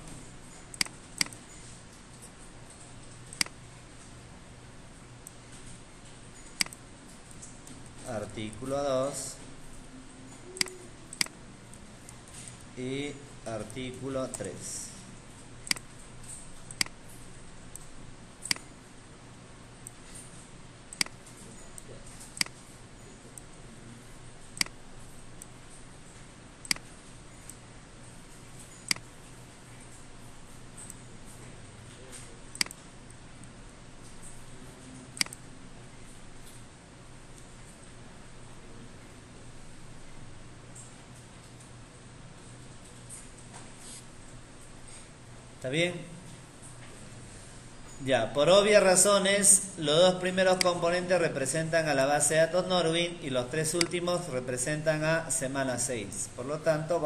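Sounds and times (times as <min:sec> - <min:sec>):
faint low hum: 0:00.0 - 0:57.0
computer mouse clicks: 0:00.7 - 0:01.5, 0:02.1 - 0:03.6, 0:06.4 - 0:07.9, 0:10.4 - 0:11.4, 0:15.6 - 0:18.7, 0:19.8 - 0:22.6, 0:24.6 - 0:24.8, 0:26.6 - 0:27.6, 0:28.7 - 0:29.2, 0:32.1 - 0:35.4, 0:53.7 - 0:54.0.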